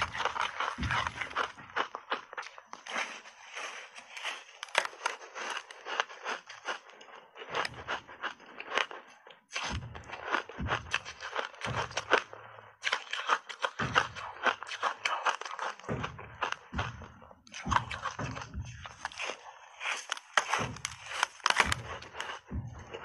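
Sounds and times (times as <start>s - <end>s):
deep thuds: 0.0s - 1.9s, 9.7s - 12.7s, 15.8s - 19.3s, 20.5s - 23.0s
crunching ice in mouth: 0.0s - 23.0s.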